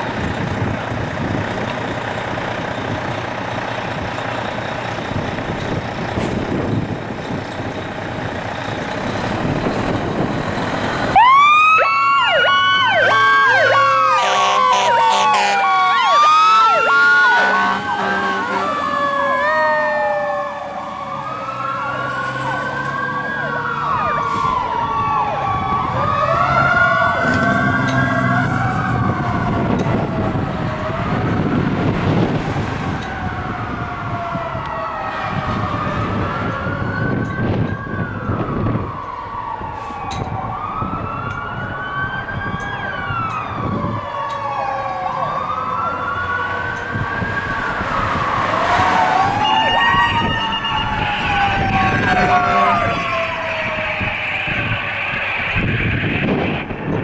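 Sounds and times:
fire engine running: 0.0 - 57.0
wailing siren: 0.0 - 57.0
pulsing high siren tone: 7.8 - 57.0
low horn blasts: 14.1 - 15.8, 17.3 - 19.0, 49.4 - 53.4.

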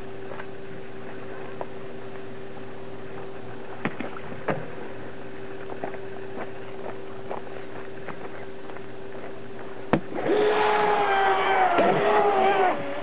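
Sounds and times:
electric boat motor running: 10.0 - 13.0.

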